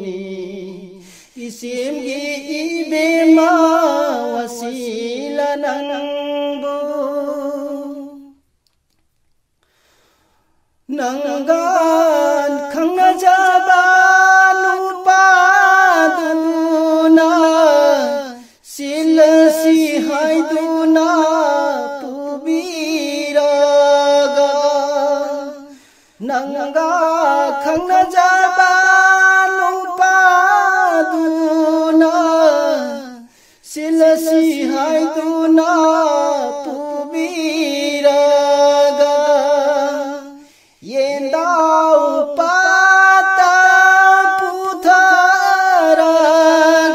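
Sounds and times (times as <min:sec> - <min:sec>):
person singing unaccompanied: 0:00.0 - 0:08.4, 0:10.9 - 0:46.9
short breaths: 0:01.0 - 0:01.4, 0:09.6 - 0:10.8, 0:25.7 - 0:26.2, 0:33.2 - 0:33.7, 0:40.4 - 0:40.8.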